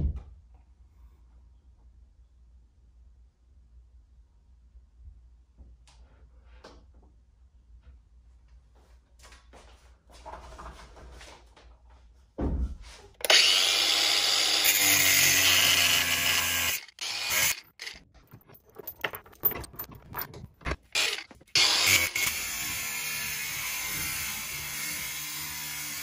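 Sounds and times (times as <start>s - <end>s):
thump: 12.4s - 12.9s
angle grinder cutting steel: 13.2s - 18.1s, 20.8s - 26.0s.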